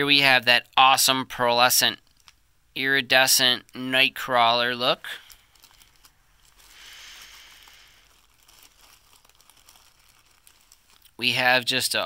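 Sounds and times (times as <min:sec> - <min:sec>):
plastic bag crinkling: 0:03.6 - 0:12.0.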